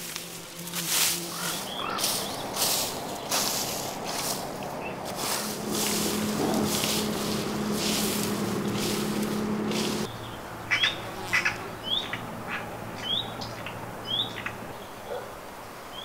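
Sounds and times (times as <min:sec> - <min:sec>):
rustling noise bursts: 0:00.0 - 0:10.1
steady low hum: 0:01.2 - 0:10.3.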